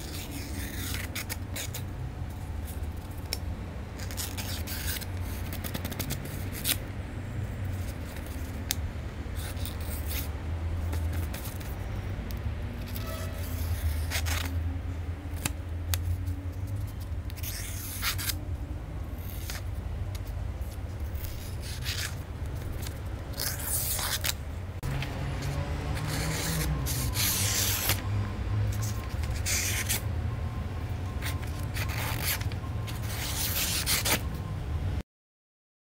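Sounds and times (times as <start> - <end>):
knife slicing paper: 0.0 - 1.9, 4.0 - 6.8, 16.6 - 18.4, 21.0 - 24.4, 25.4 - 28.0, 31.2 - 34.2.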